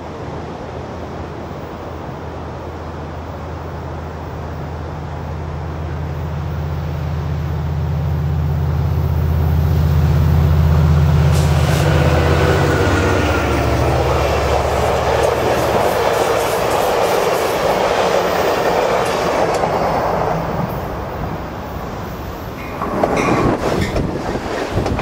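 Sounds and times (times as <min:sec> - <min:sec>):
diesel train engine drone: 0:00.1 - 0:25.0
surf hissing: 0:09.4 - 0:24.9
train clicks: 0:11.3 - 0:20.9, 0:22.5 - 0:25.0.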